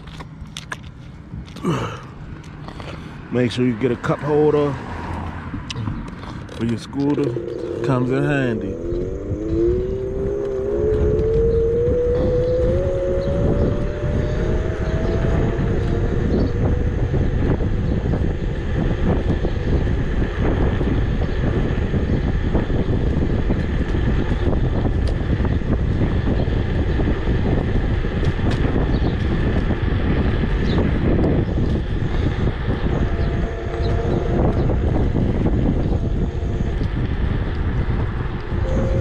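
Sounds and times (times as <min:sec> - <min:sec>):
scooter road noise: 0:00.0 - 0:39.0
wind buffeting microphone: 0:00.0 - 0:39.0
rising motor whine: 0:03.5 - 0:39.0.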